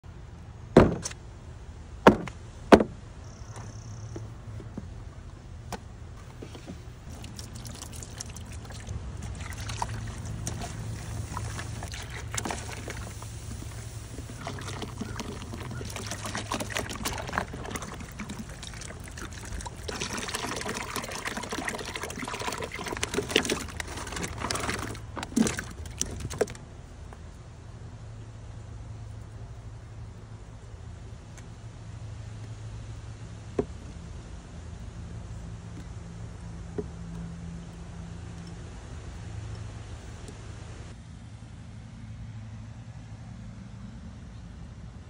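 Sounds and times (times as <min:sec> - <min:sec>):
steady low hum: 0:00.0 - 0:45.0
knocks on plastic cooler: 0:00.8 - 0:01.0, 0:02.1 - 0:03.0
juice pouring and splashing: 0:06.5 - 0:26.6.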